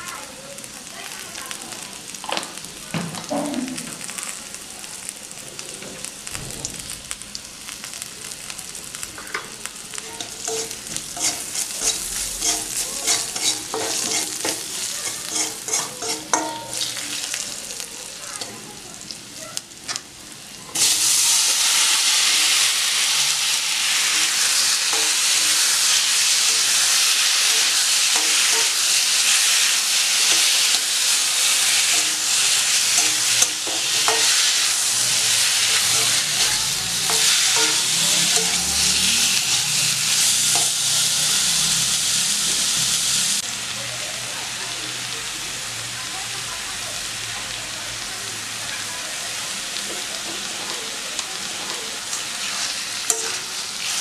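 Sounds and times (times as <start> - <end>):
food sizzling in oil: 0.0 - 54.0
loud steady sizzle: 0.0 - 54.0
metal spatula scraping a wok: 10.2 - 17.3, 23.8 - 43.0.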